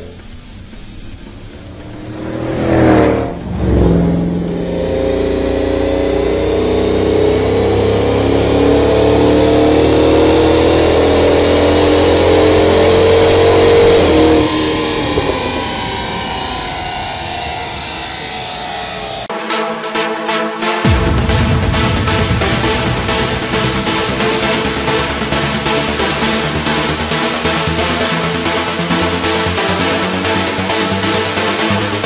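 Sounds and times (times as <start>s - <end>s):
engine revving under load: 0.0s - 19.3s, 20.8s - 32.0s
car driving past: 0.2s - 19.3s.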